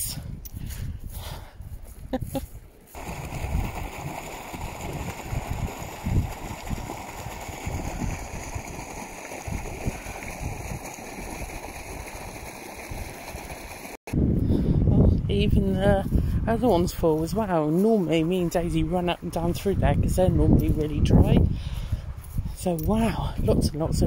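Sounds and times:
water rushing and gurgling: 0:02.9 - 0:14.0.

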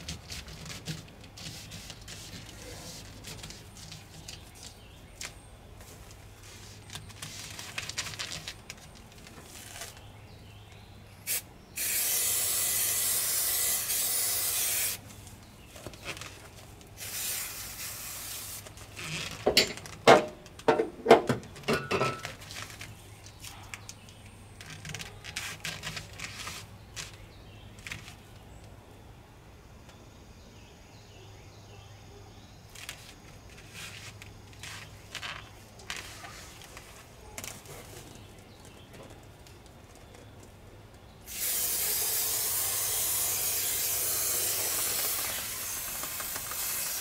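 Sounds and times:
aerosol spray hiss: 0:11.3 - 0:15.0, 0:41.3 - 0:47.0
sharp knocks and clatter: 0:19.4 - 0:22.4.

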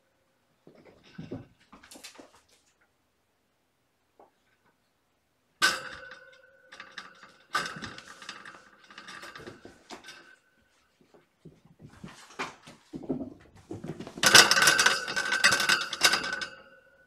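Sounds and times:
toys rustling and clattering: 0:00.7 - 0:02.8, 0:06.8 - 0:16.6.

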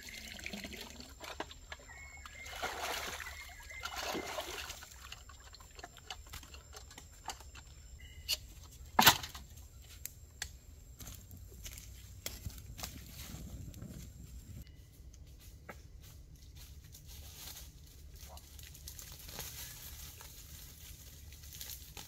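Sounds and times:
water sloshing and pouring: 0:00.0 - 0:07.6.

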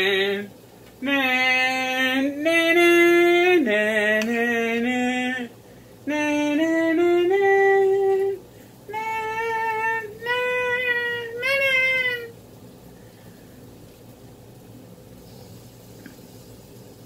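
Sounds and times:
person singing long notes: 0:00.0 - 0:12.4.

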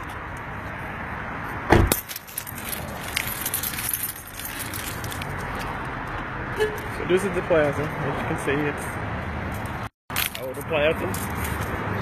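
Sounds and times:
keys jangling: 0:01.9 - 0:05.7.

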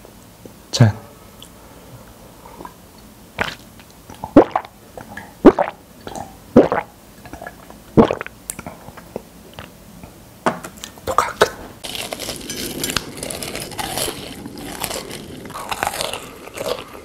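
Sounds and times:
person gulping drink: 0:03.4 - 0:09.7.

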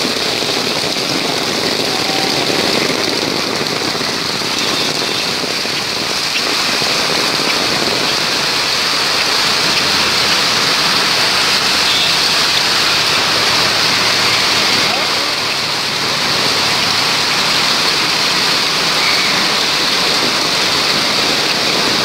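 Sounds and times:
floodwater rushing: 0:00.0 - 0:22.0
heavy rain: 0:00.0 - 0:22.0.

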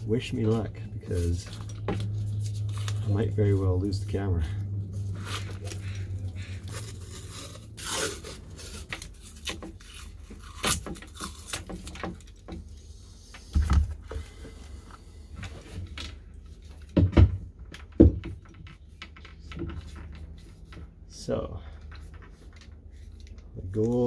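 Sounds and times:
tape tearing and peeling: 0:00.4 - 0:04.0, 0:04.9 - 0:13.6
dull knocks of handling: 0:16.8 - 0:20.9.

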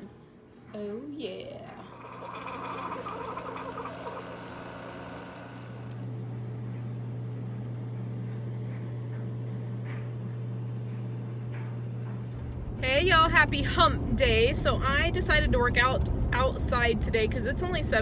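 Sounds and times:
coffee machine hum: 0:01.7 - 0:13.0
liquid splashing into cup: 0:01.8 - 0:06.0.

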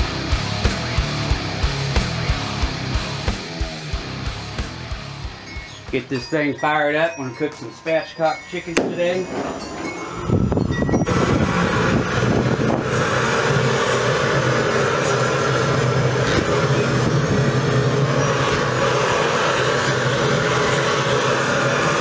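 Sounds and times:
propane torch running: 0:07.2 - 0:22.0.

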